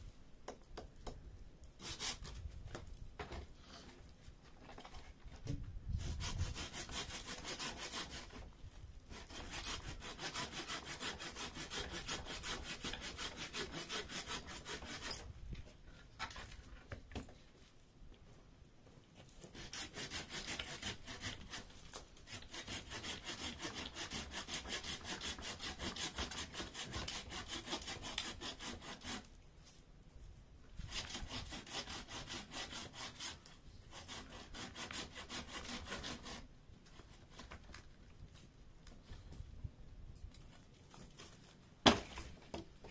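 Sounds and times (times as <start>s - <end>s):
hand saw cutting wood: 1.8s - 2.5s, 5.9s - 8.5s, 9.1s - 15.3s, 19.3s - 29.4s, 30.8s - 37.8s.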